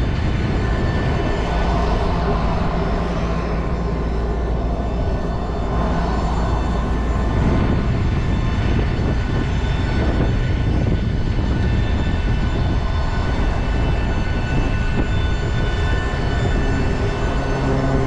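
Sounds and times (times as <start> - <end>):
jet aircraft rumble and whine: 0.0 - 18.0.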